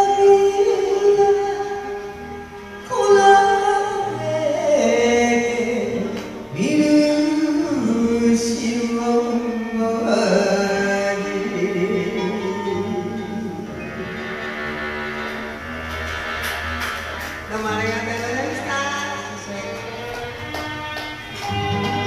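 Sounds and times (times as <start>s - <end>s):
woman singing into microphone: 0.0s - 14.0s, 17.5s - 20.3s
karaoke backing track: 0.0s - 22.0s.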